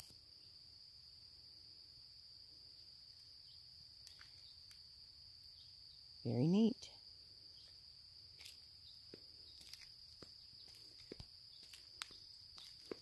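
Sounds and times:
crickets trilling: 0.0s - 13.0s
soft footsteps: 7.6s - 13.0s.

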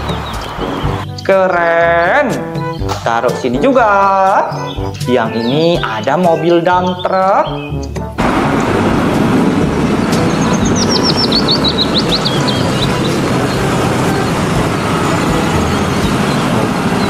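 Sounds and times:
bird chirping: 0.0s - 8.2s, 9.8s - 17.0s
dump truck driving past: 8.2s - 17.0s.

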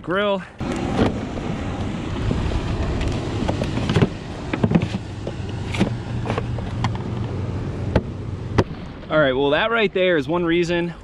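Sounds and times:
knocks and clunks in cooler: 3.4s - 7.0s.

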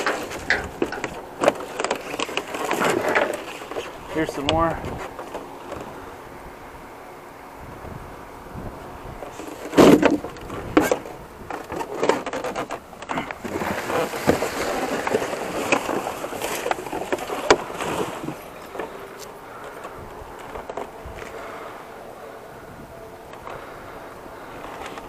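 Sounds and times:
wooden debris knocking and thudding: 0.0s - 5.9s, 9.3s - 21.4s
rustling and scraping: 0.0s - 6.2s, 9.2s - 25.0s.

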